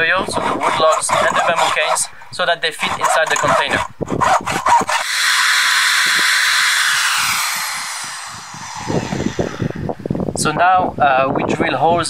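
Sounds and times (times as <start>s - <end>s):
cordless drill boring into wood: 2.8s - 10.0s.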